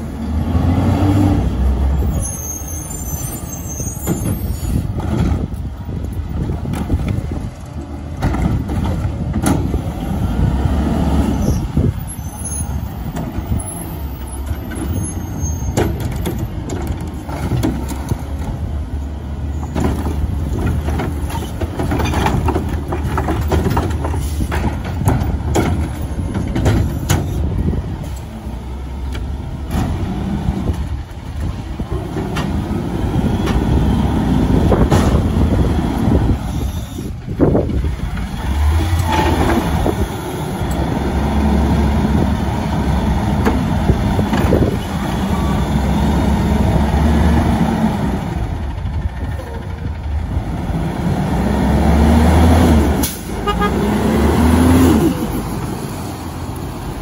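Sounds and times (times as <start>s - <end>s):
diesel truck engine revving: 0.0s - 2.8s, 4.7s - 26.3s, 27.4s - 57.0s
air brakes hissing: 36.4s - 37.2s.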